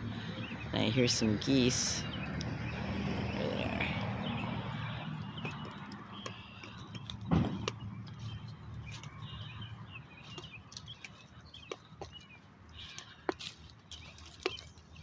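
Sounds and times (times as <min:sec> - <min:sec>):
carried items clinking while walking: 0:04.3 - 0:15.0
thump: 0:07.3 - 0:07.7.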